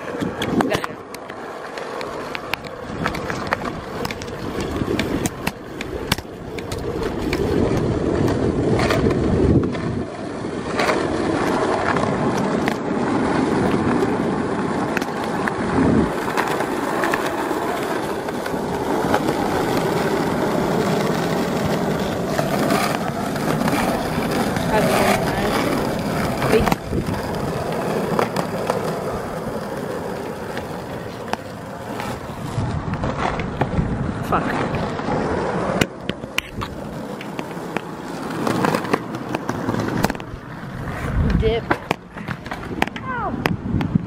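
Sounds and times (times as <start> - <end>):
skateboard wheels rolling on asphalt: 0.0 - 44.0.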